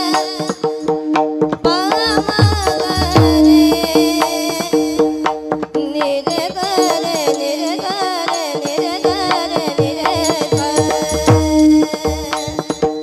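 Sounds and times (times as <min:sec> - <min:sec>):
drum strokes: 0:00.0 - 0:13.0
women singing devotional song: 0:00.0 - 0:13.0
steady drone: 0:01.9 - 0:05.2
hand cymbals striking: 0:08.7 - 0:13.0.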